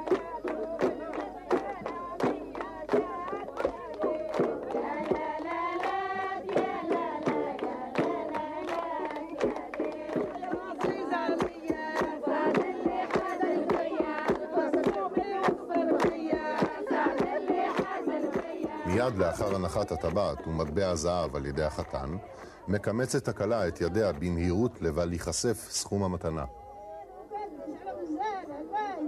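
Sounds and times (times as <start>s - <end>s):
rhythmic hand clapping: 0.0s - 24.9s
women singing together: 0.0s - 25.0s, 26.6s - 29.0s.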